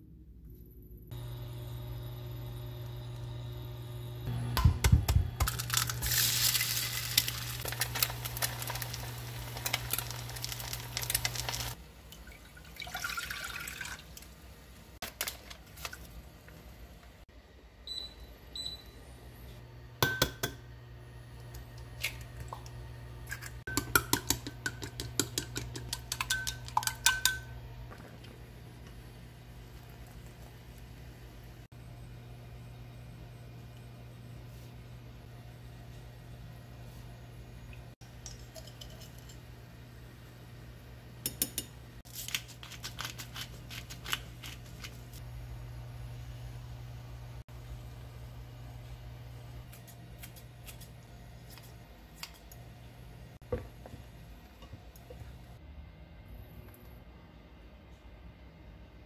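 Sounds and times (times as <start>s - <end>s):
pots and utensils clinking: 23.3s - 28.2s, 38.2s - 39.5s
eggs beaten in glass bowl: 23.6s - 27.4s.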